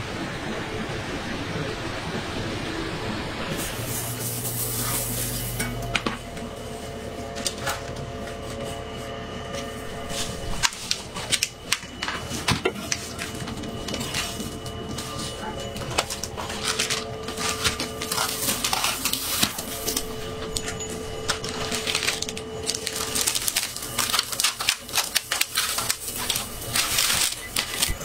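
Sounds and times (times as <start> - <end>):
kitchen hum: 0.8 - 28.0
metal spatula scraping baking tray: 3.6 - 6.0, 12.0 - 22.2.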